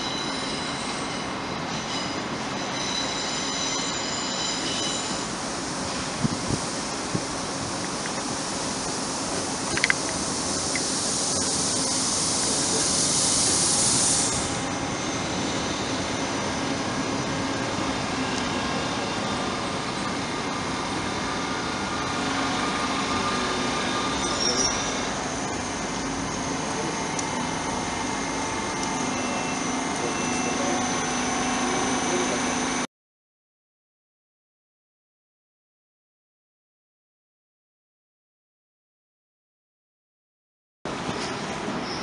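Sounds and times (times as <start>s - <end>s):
electric train rumbling: 0.0s - 32.9s, 40.9s - 42.0s
loud high hiss: 5.2s - 15.6s.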